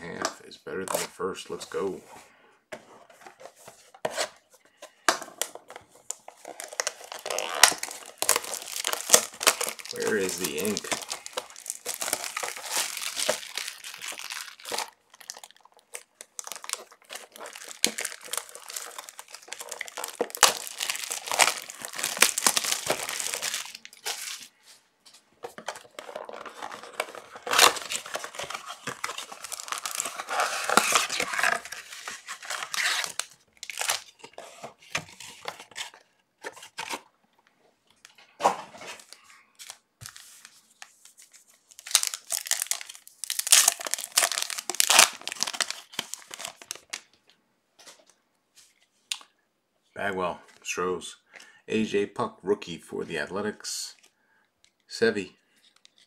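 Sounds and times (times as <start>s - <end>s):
wrappers crinkling: 6.0s - 24.6s, 25.5s - 34.6s, 39.0s - 47.1s
wrappers ripping: 6.5s - 24.5s, 25.9s - 34.1s, 41.7s - 47.0s.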